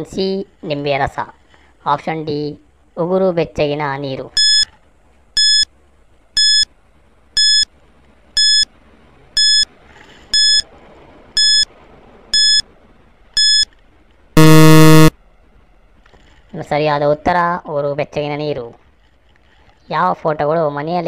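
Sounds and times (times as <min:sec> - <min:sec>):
short electronic beeps: 0:04.4 - 0:04.7, 0:05.4 - 0:05.6, 0:06.4 - 0:06.6, 0:07.4 - 0:07.6, 0:08.4 - 0:08.6, 0:09.4 - 0:09.6, 0:10.4 - 0:10.6, 0:11.4 - 0:11.7, 0:12.4 - 0:12.6, 0:13.4 - 0:13.7, 0:14.4 - 0:15.1
loud low buzzer: 0:14.4 - 0:15.1.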